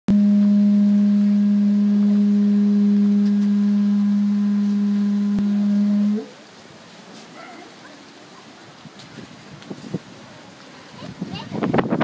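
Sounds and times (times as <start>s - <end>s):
conch shell trumpet note: 0.1s - 6.4s.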